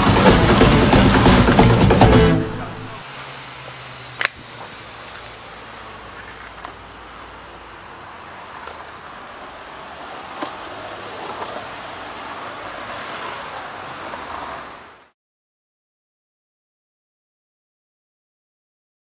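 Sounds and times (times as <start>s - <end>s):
longboard wheels rolling on pavement: 3.0s - 15.1s.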